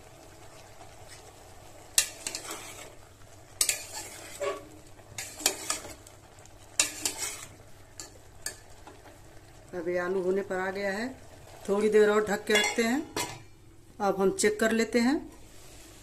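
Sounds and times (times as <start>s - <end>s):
metal spoon scraping a pot: 2.0s - 3.0s, 3.6s - 6.0s, 6.8s - 8.1s.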